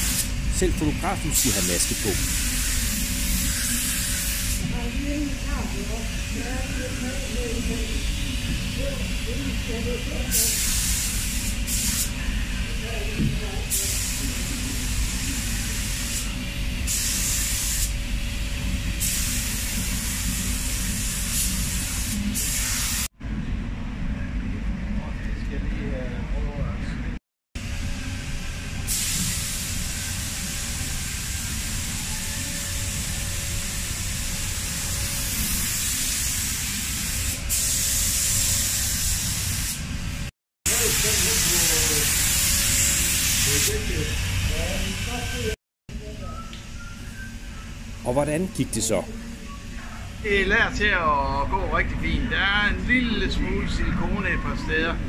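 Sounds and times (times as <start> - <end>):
paint spray gun hissing: 0.0 - 4.7, 16.9 - 18.0.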